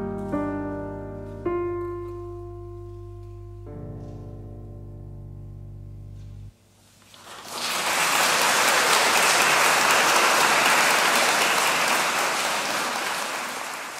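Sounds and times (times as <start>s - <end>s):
audience applauding: 7.1s - 13.9s.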